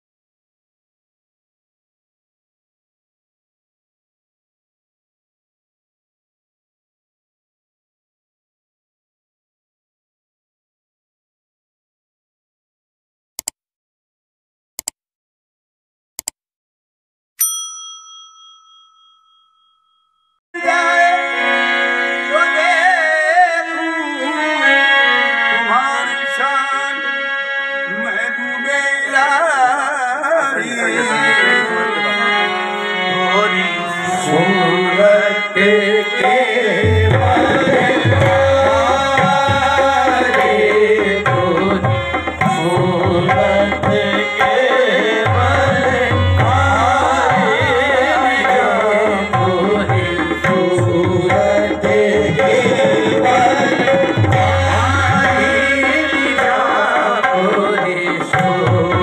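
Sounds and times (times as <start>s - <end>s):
bell chime: 17.4s - 20.4s
men singing: 20.6s - 25.0s, 28.0s - 32.5s, 33.3s - 59.0s
harmonium chords: 20.6s - 59.0s
hand drums beat: 37.1s - 39.7s, 52.2s - 55.4s.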